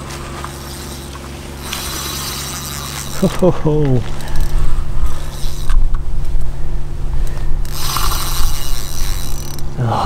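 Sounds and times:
heavy low rumble: 0:00.0 - 0:10.0
fishing reel grinding: 0:00.4 - 0:03.5, 0:04.1 - 0:06.0, 0:07.6 - 0:09.7.

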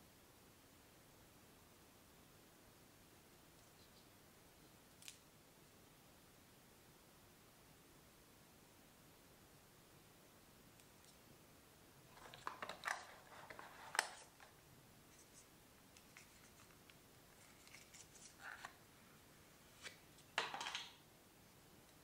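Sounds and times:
paper band rustling: 0:12.1 - 0:16.8, 0:17.4 - 0:18.8.

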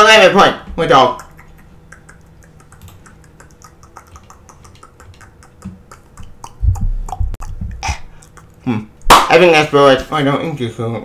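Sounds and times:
low thuds: 0:06.6 - 0:08.0.

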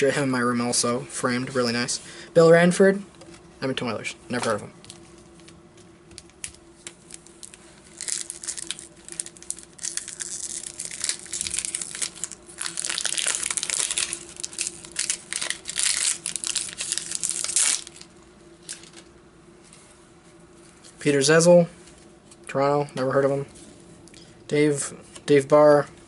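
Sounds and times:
faint steady hum: 0:00.0 - 0:26.0
paper packaging crinkling: 0:06.2 - 0:19.1.

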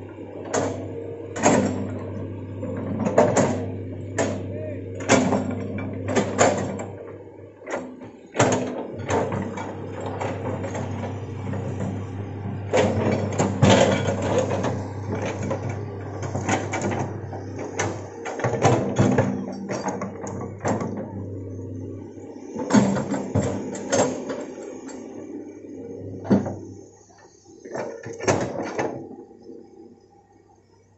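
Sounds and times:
excavator diesel engine running: 0:00.0 - 0:29.5
excavator bucket clanks and knocks: 0:01.4 - 0:02.0, 0:02.7 - 0:07.0, 0:07.6 - 0:21.3.

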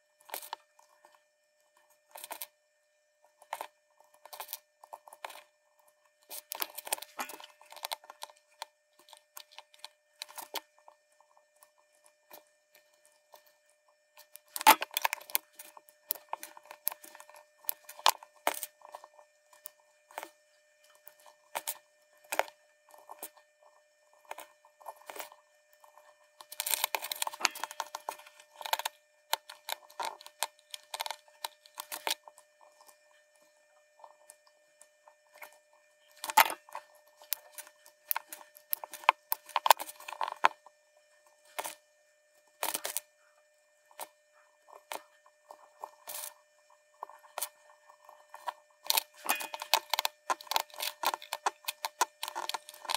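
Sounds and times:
wire leads clicking and scraping: 0:03.4 - 0:12.4, 0:24.2 - 0:33.1, 0:35.1 - 0:40.7, 0:42.6 - 0:43.1, 0:47.0 - 0:52.9.

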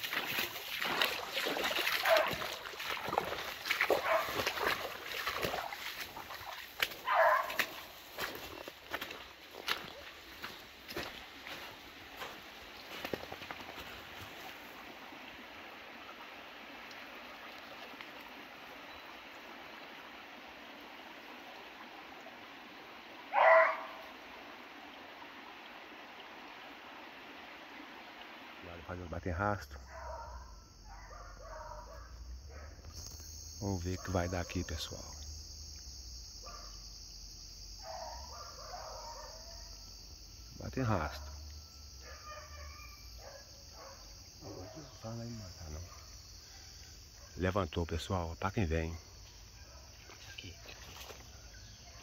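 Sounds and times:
rustle of brush and leaves: 0:00.0 - 0:29.0, 0:48.4 - 0:52.0
running stream water: 0:00.0 - 0:52.0
dog barking: 0:02.0 - 0:02.6, 0:03.9 - 0:04.7, 0:07.0 - 0:07.9, 0:23.3 - 0:24.1, 0:29.8 - 0:32.8, 0:34.0 - 0:34.6, 0:36.4 - 0:36.8, 0:37.8 - 0:39.7, 0:42.0 - 0:45.0, 0:45.7 - 0:46.1, 0:49.6 - 0:50.1.

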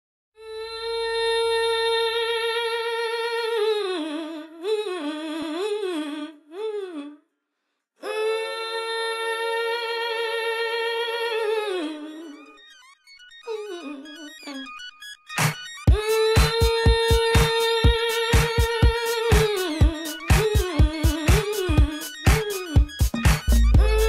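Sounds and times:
person humming: 0:15.9 - 0:24.0.

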